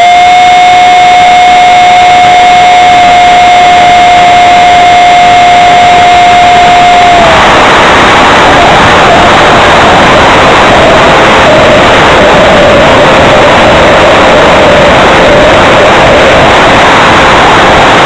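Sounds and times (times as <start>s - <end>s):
electric ducted fan whine: 0.0s - 18.0s
rushing air noise: 0.0s - 18.0s.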